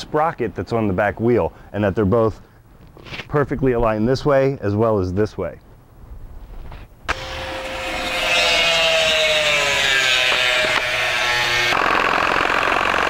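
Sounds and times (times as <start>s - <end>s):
angle grinder cutting steel: 7.1s - 13.0s.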